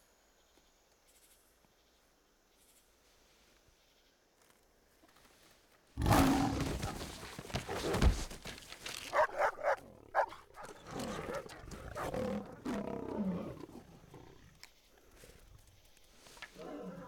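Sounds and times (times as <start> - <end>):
lions growling low: 6.0 - 7.9, 9.1 - 17.0
heavy thump of animal falling: 6.0 - 8.6.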